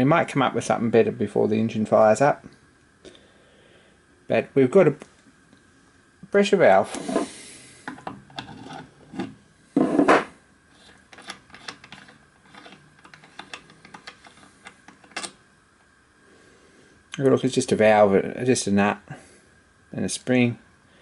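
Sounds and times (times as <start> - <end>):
metal rubbing and rasping: 8.4 - 14.5.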